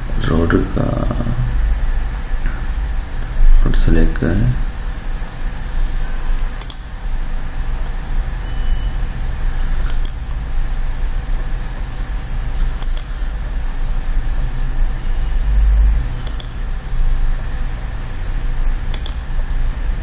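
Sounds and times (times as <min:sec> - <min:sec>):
low electrical hum with hiss: 0:00.0 - 0:20.0
mouse button clicking: 0:06.6 - 0:06.8, 0:09.9 - 0:10.2, 0:16.2 - 0:16.6, 0:18.9 - 0:19.2.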